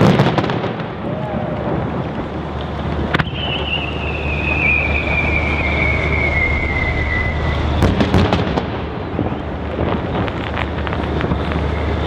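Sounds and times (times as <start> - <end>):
distant fireworks booming: 0.0 - 12.0
fireworks crackling pops: 0.0 - 12.0
low rumble: 0.8 - 12.0.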